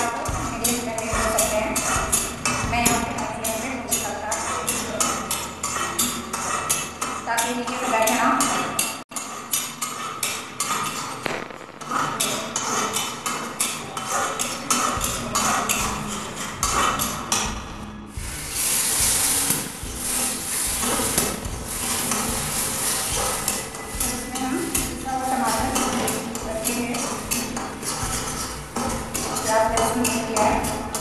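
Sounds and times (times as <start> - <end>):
spatula scraping a metal pan: 0.0 - 31.0
oil sizzling: 18.1 - 25.8.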